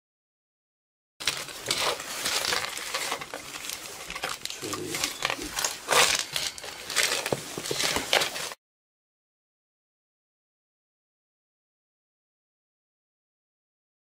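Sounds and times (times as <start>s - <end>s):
plastic bags rustling and crinkling: 1.2s - 8.6s.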